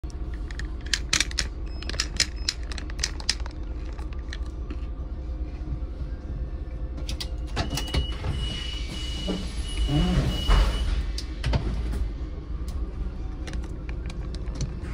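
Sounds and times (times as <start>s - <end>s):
sharp clicks and rattles: 0.3s - 4.8s.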